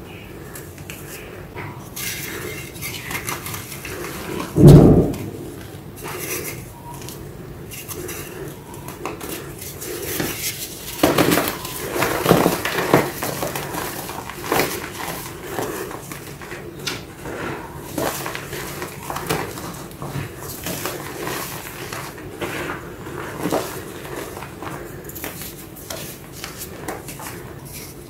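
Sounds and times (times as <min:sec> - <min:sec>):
loud low thump: 0:04.6 - 0:05.6.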